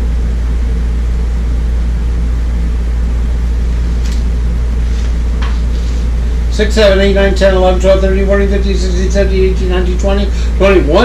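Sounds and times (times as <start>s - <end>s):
machine humming: 0.0s - 11.0s
paper rustling: 3.8s - 6.1s.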